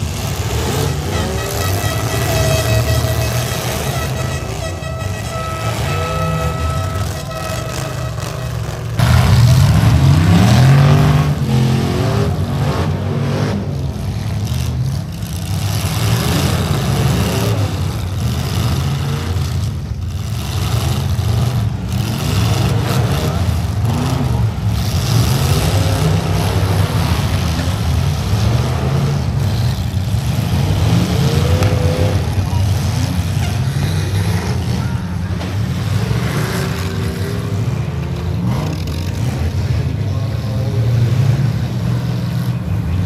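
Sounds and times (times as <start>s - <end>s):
truck engines revving: 0.0s - 43.0s.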